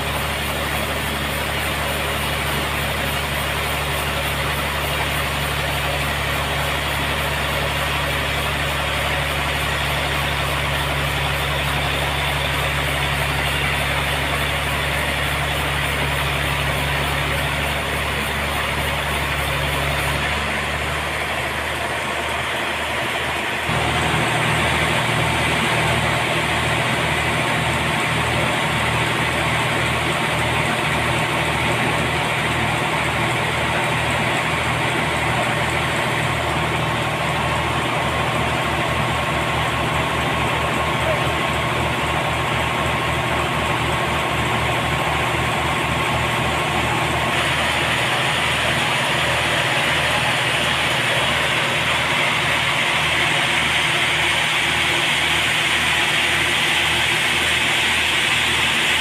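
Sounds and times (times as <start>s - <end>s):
sawmill engine running: 0.0s - 59.0s.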